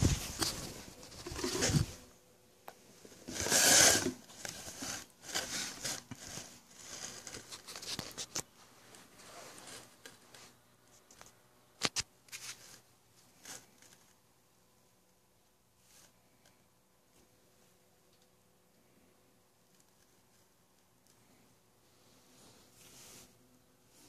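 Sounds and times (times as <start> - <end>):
fabric rustling: 0.0 - 2.0.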